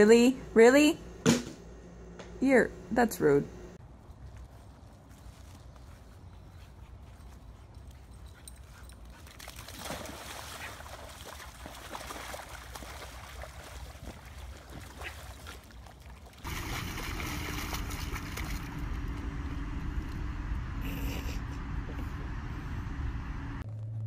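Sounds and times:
dog splashing in muddy water: 9.1 - 19.0
low rumble: 16.5 - 24.0.

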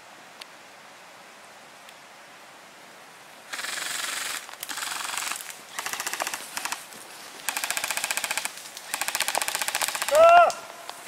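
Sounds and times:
airsoft guns firing rapid bursts: 3.5 - 6.8, 7.5 - 10.2.

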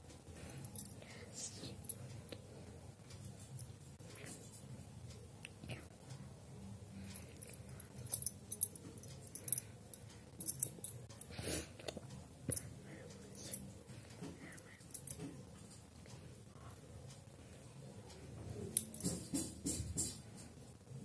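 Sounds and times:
jingly clinks: 7.1 - 9.7, 10.4 - 11.1.

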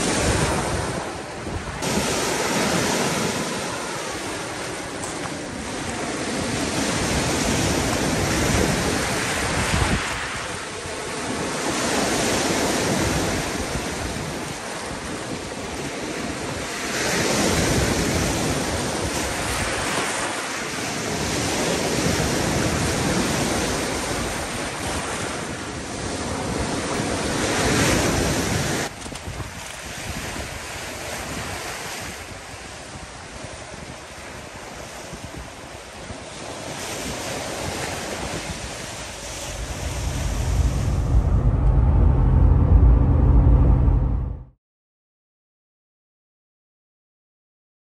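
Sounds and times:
waves washing over rocky shore: 0.0 - 40.3.

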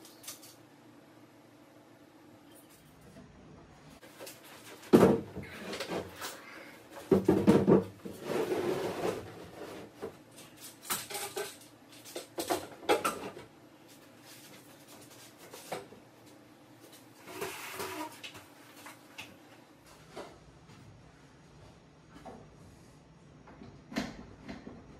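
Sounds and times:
knocks and clatter on wood: 4.8 - 6.2, 7.0 - 8.2.

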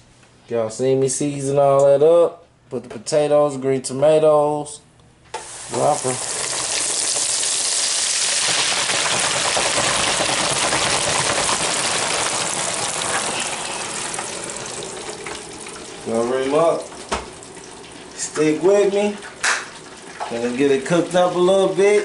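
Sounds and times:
oil sizzling in deep fryer: 5.3 - 22.0.

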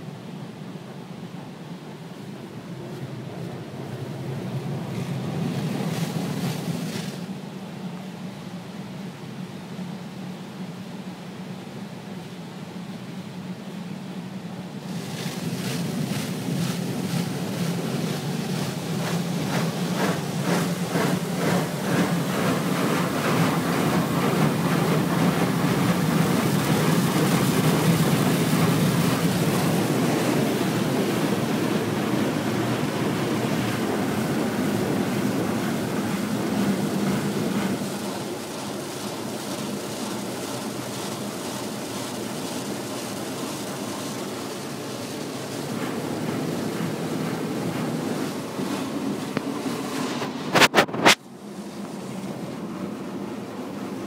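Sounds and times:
water spraying on car: 2.7 - 7.4, 14.8 - 54.0
car wash brushes slapping: 14.9 - 41.5.

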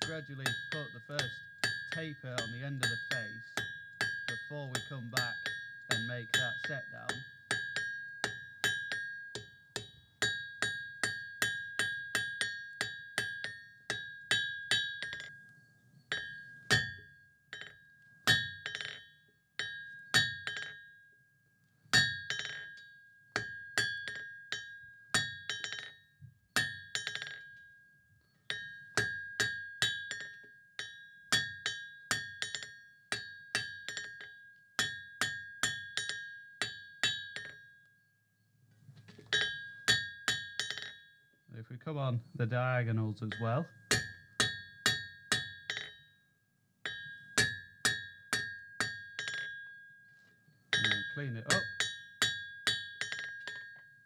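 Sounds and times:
hammer striking steel on anvil: 0.0 - 15.3, 43.2 - 46.0, 46.9 - 49.7, 50.7 - 53.9.

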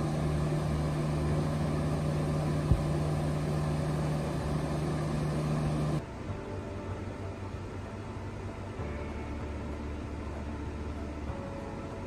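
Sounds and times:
air conditioner humming: 0.0 - 12.0.

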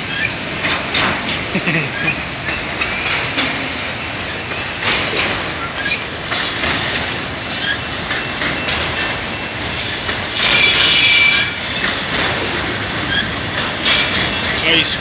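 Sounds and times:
freight train wheels rumbling: 0.0 - 15.0
metallic wheel squeal: 7.5 - 7.9, 9.8 - 11.9.

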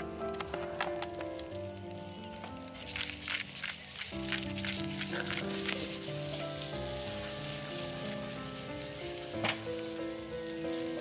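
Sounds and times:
fire crackling: 0.0 - 11.0
soft background music: 0.0 - 11.0
vegetables sizzling in pan: 1.4 - 11.0.

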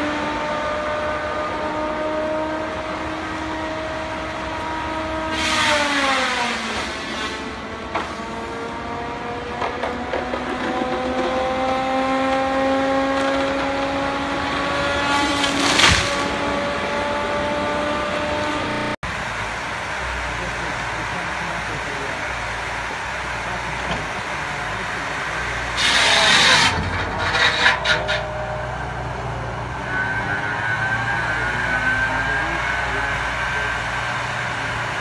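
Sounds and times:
machine saw whining: 0.0 - 35.0
saw cutting into trunk: 4.2 - 8.8, 9.7 - 17.2, 20.1 - 28.3
loud crashing: 15.0 - 16.6.

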